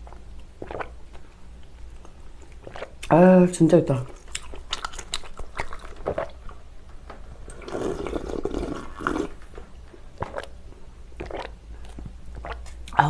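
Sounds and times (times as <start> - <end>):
person slurping broth: 7.5 - 9.4, 11.2 - 11.5.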